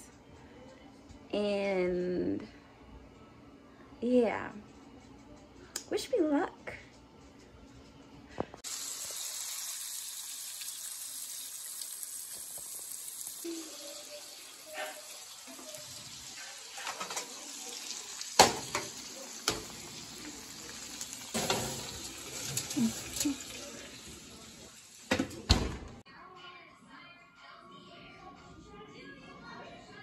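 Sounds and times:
steak sizzling in a pan: 0:08.6 - 0:25.1.

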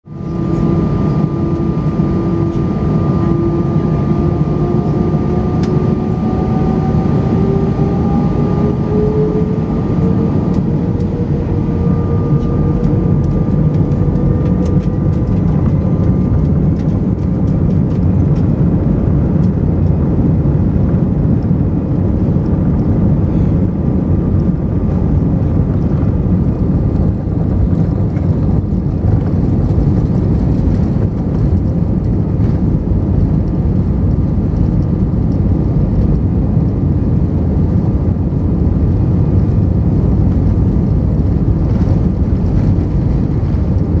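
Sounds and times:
jet engine roar: 0:00.0 - 0:44.0
jet engines spooling up: 0:00.1 - 0:18.7.

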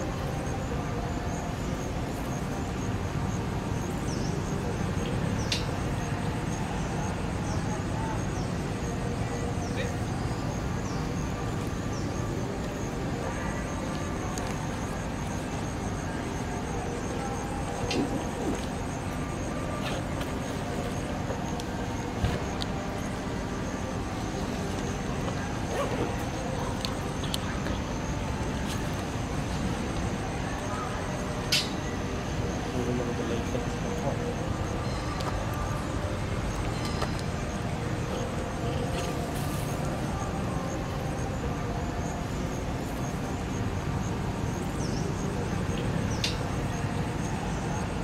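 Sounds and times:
low rumbling background noise: 0:00.0 - 0:48.0.

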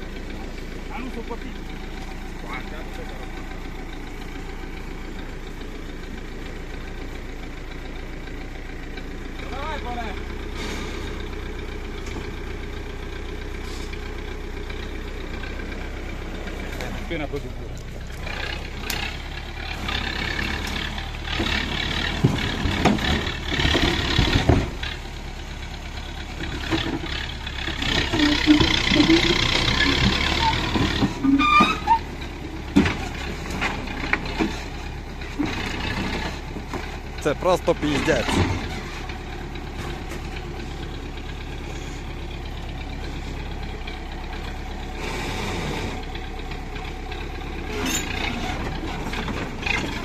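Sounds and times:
tractor engine running: 0:00.0 - 0:50.0
sharp knocks and clunks: 0:21.3 - 0:24.9, 0:32.6 - 0:34.8, 0:37.9 - 0:40.4.

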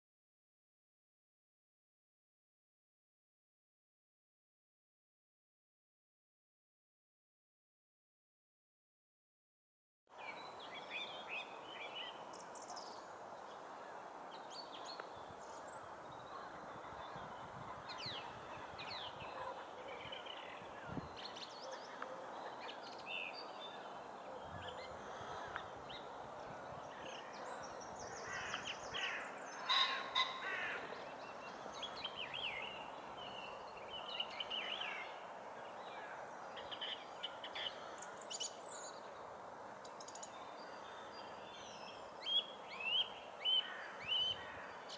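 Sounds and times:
birds calling and singing: 0:10.2 - 0:44.9
harsh bird calls: 0:10.4 - 0:35.3.

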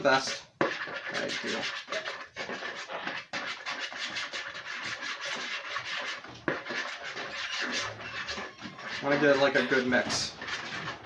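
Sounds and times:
spoon scraping a bowl: 0:00.0 - 0:11.0.

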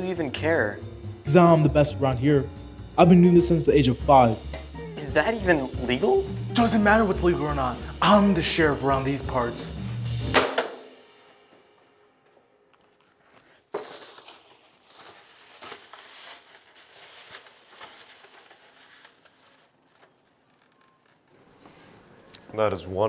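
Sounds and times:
plastic bag crinkling: 0:13.0 - 0:21.4.

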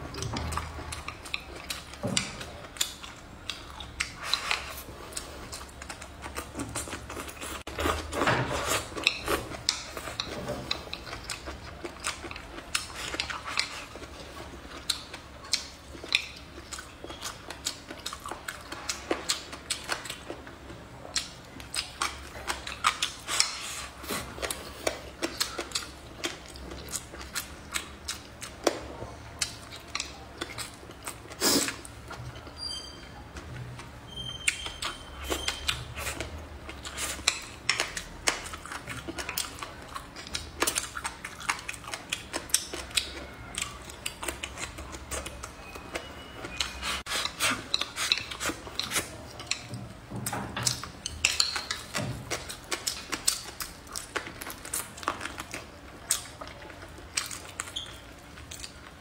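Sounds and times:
chewing: 0:00.0 - 0:59.0
chopsticks clicking against plate: 0:50.6 - 0:53.5.

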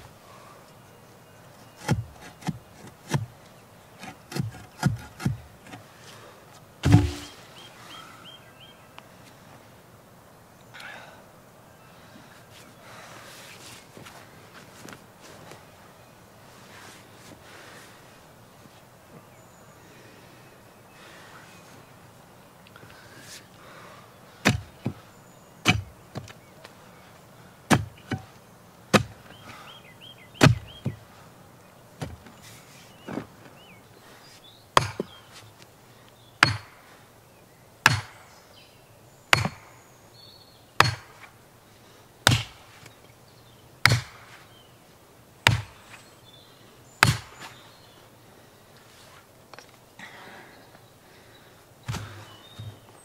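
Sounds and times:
heavy hand tool striking: 0:06.8 - 0:07.3, 0:36.4 - 0:36.8.

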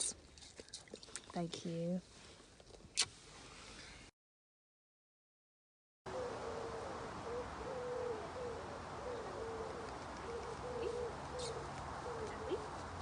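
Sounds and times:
pigeon cooing: 0:06.1 - 0:12.8
outdoor background hiss and hum: 0:06.1 - 0:13.0.

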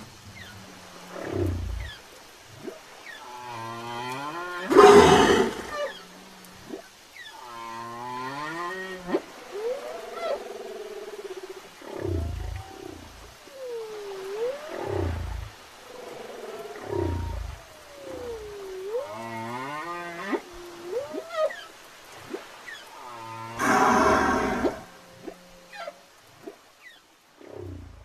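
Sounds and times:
whale song calls: 0:00.1 - 0:27.9
low pulsing sounds: 0:23.6 - 0:25.2.

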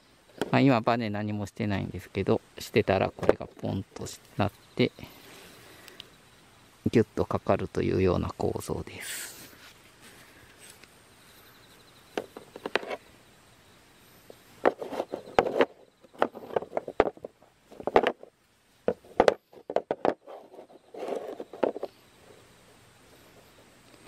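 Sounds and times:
trap parts knocking and scraping: 0:00.3 - 0:00.6, 0:03.1 - 0:03.8, 0:12.1 - 0:13.0, 0:14.6 - 0:18.3, 0:18.9 - 0:22.0.

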